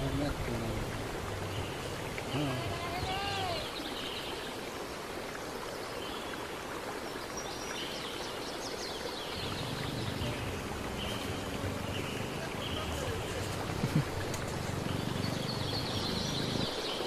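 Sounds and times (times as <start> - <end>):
outdoor background hiss: 0.0 - 17.0.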